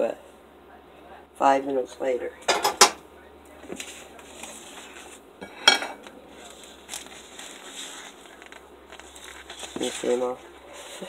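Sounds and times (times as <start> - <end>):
kitchenware clattering: 2.4 - 3.0, 5.4 - 6.1.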